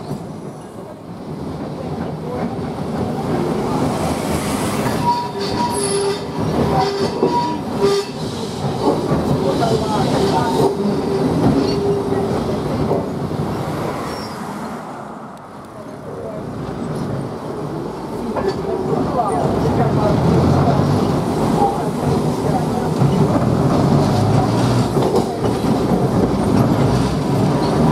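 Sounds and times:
tram wheels rumbling on rail: 0.0 - 27.9
tram wheel squeal: 4.4 - 13.2, 14.0 - 14.5.

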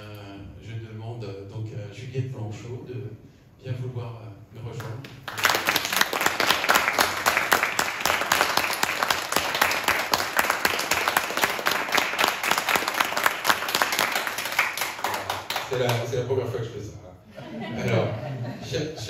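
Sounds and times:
audience applauding: 5.2 - 16.1.

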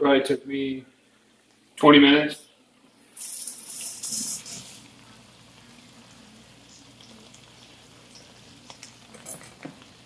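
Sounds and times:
food sizzling in pans: 2.9 - 10.0
running tap: 3.0 - 5.0.

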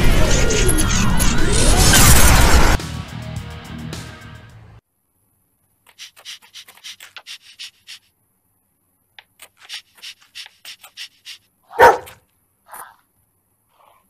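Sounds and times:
dog panting: 9.6 - 12.2.

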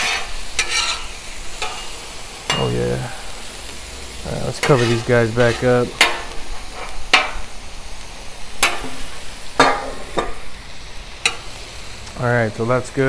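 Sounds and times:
metal spatula clacks and scrapes: 0.0 - 1.9, 8.6 - 8.9
shrimp sizzling on griddle: 0.0 - 13.0.

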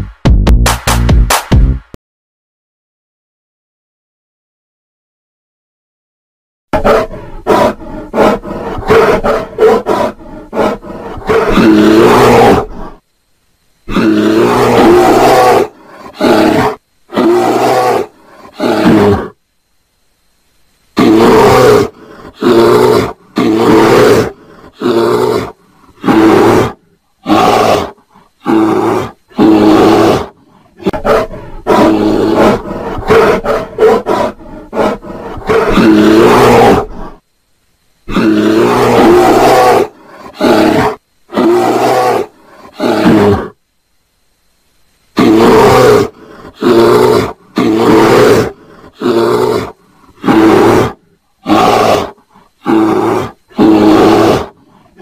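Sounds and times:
bears roaring and growling: 6.8 - 13.0, 13.9 - 19.4, 21.0 - 37.2, 38.1 - 43.6, 45.2 - 55.0.

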